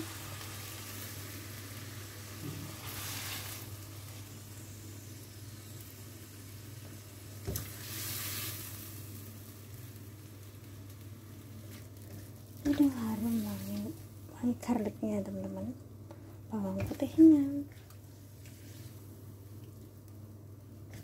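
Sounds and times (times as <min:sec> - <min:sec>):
wok sizzling: 0:00.0 - 0:21.0
constant low hum: 0:08.7 - 0:21.0.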